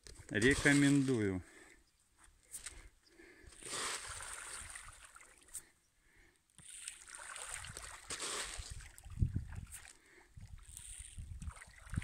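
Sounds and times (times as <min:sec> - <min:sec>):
fish splashing at water surface: 0:06.6 - 0:09.1.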